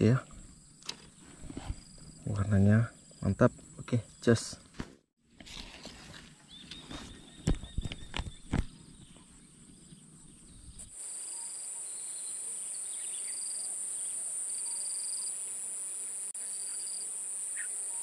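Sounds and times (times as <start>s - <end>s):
insect chirps: 0.0s - 4.8s, 5.9s - 18.0s
high-pitched insect trilling: 8.1s - 18.0s.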